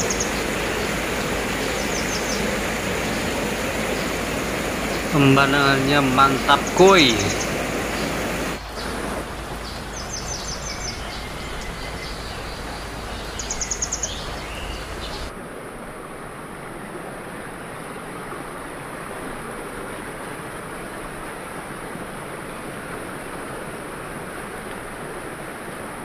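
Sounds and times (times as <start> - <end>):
bird trilling: 0.0 - 15.3
stream burbling over stones: 0.0 - 15.3
river rushing over rapids: 0.0 - 26.0.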